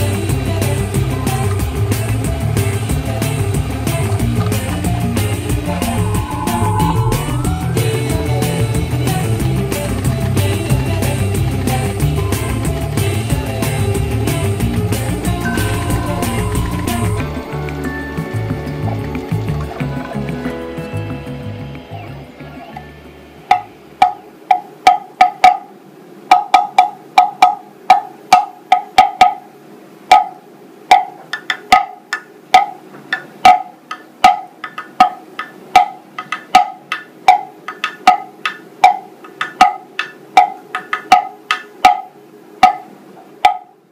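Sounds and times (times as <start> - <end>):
plastic cowbell struck with stick: 15.4 - 17.4, 23.5 - 25.6, 26.3 - 29.4, 30.1 - 32.0, 32.6 - 32.8, 33.5 - 42.8, 43.4 - 43.7.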